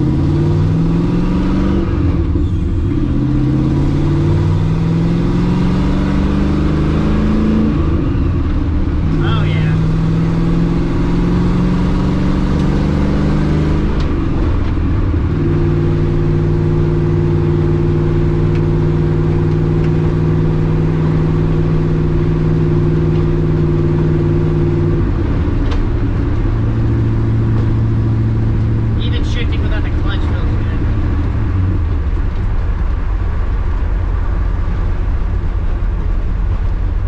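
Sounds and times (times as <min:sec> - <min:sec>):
car engine running: 0:00.0 - 0:37.0
gear changes: 0:00.0 - 0:37.0.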